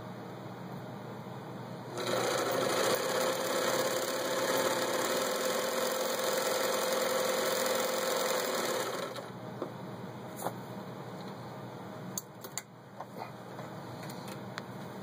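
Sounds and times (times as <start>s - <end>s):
sewing machine running: 1.9s - 9.3s.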